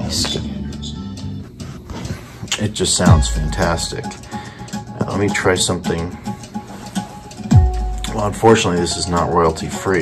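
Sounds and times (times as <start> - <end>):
music through speakers: 2.6 - 4.2, 6.7 - 10.0.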